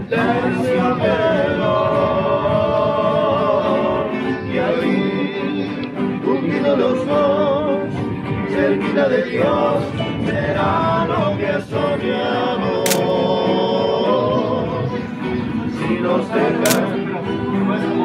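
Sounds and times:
song with sung melody: 0.0s - 18.0s
sharp click: 12.8s - 13.2s, 16.6s - 17.0s.

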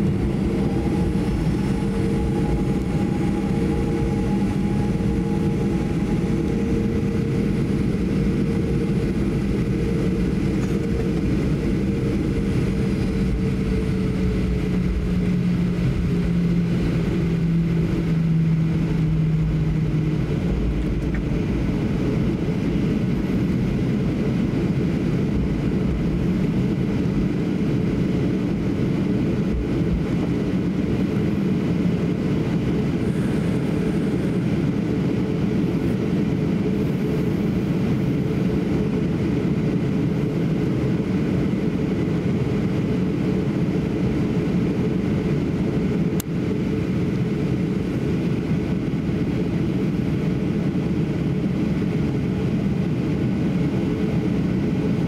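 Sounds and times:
low droning tone: 0.0s - 27.1s
airplane cabin rumble: 0.0s - 55.0s.

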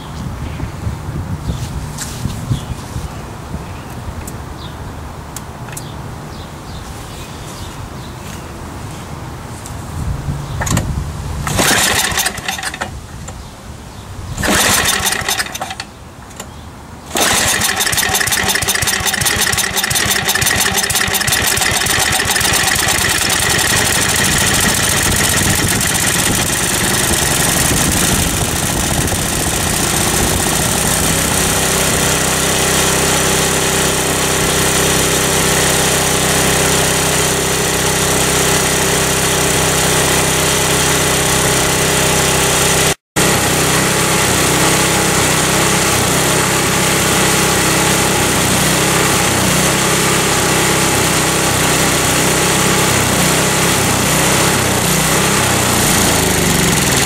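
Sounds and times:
recoil starter pulls: 10.6s - 13.4s, 14.4s - 57.0s
snowblower engine running: 11.4s - 13.0s, 14.4s - 15.9s, 17.1s - 57.0s.

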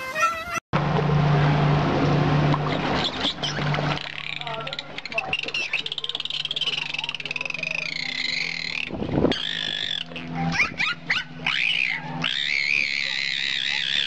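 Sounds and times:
dolphin whistling: 4.4s - 14.0s.

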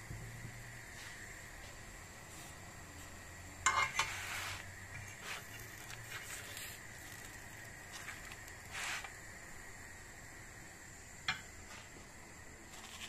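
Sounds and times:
faint sizzle: 0.0s - 13.0s
fork scraping frying pan: 3.6s - 6.4s.

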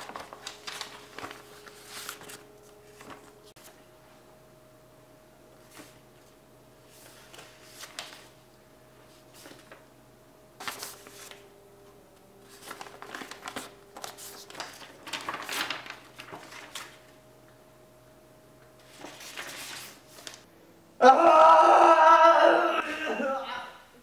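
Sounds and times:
paper rustling and crinkling: 0.0s - 3.8s, 5.6s - 8.4s, 9.0s - 9.8s, 10.6s - 11.5s, 12.4s - 17.2s, 18.8s - 20.5s.

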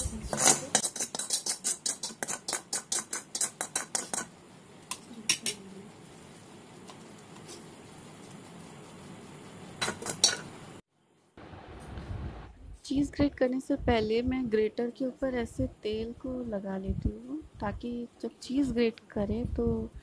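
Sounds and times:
spoon clinking on metal plate: 9.8s - 10.5s.

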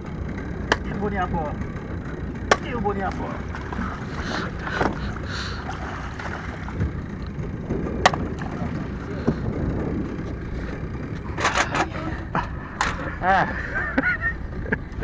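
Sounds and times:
water lapping against boat hull: 0.5s - 13.2s
wind on the microphone: 3.7s - 13.2s.

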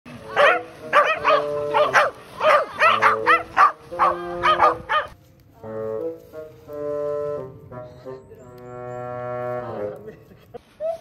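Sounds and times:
background music with held notes: 0.1s - 10.5s
dogs barking: 0.3s - 5.2s.

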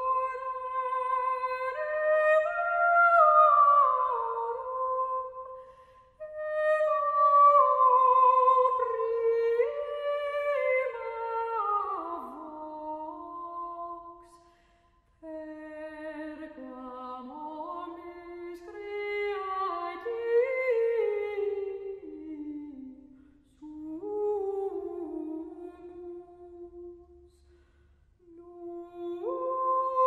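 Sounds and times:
a cappella humming: 0.0s - 5.5s, 23.6s - 27.5s, 28.2s - 30.0s.

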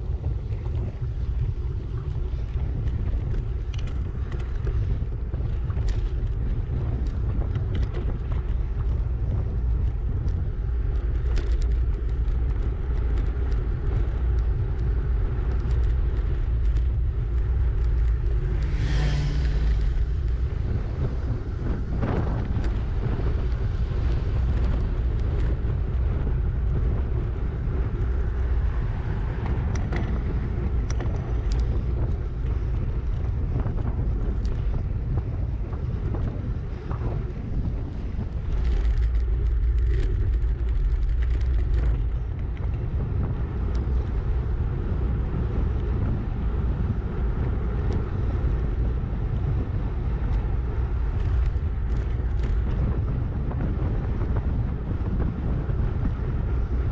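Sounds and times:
wind buffeting microphone: 0.0s - 56.9s.

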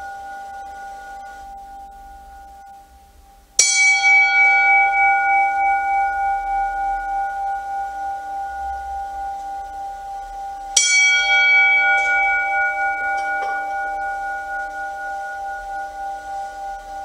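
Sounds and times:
bell ringing: 3.6s - 17.0s
bell strike: 3.6s - 17.0s.

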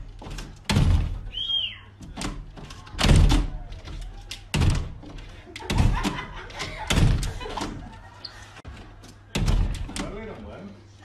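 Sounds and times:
dull thuds: 0.0s - 1.4s, 2.0s - 7.8s.

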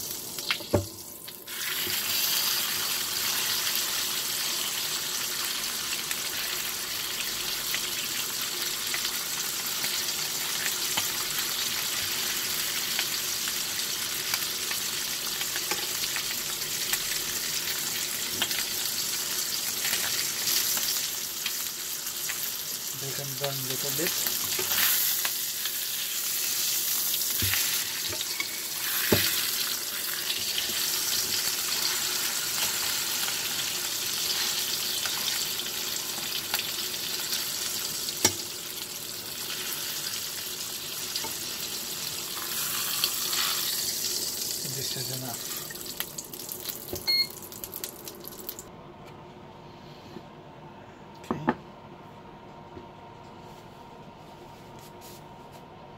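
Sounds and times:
steak sizzling in frying pan: 0.0s - 48.2s.

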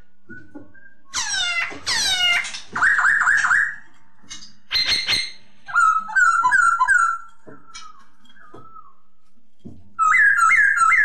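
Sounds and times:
bird singing whistled song: 0.2s - 1.4s, 2.8s - 3.8s, 4.7s - 9.2s, 10.0s - 11.0s.

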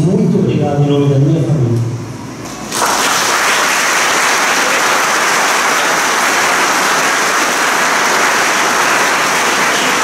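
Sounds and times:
congregation applauding: 2.6s - 10.0s.

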